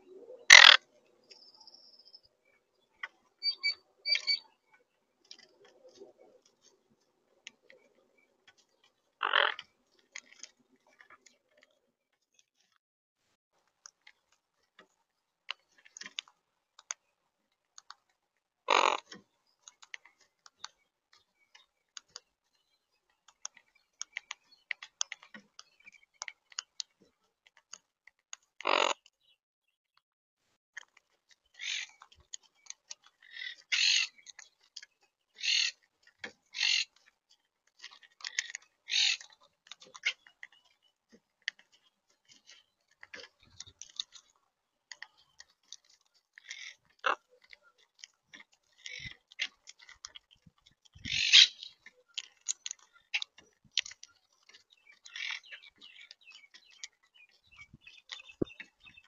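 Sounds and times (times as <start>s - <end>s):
beaks cracking seeds: 30.8s - 59.0s
parakeets squawking: 35.4s - 35.8s, 36.6s - 36.9s, 38.9s - 39.3s, 51.1s - 51.8s.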